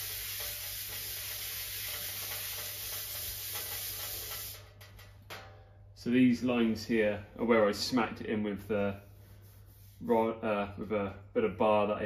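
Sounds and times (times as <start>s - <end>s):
abrasive pad scratching steel: 0.0s - 5.4s.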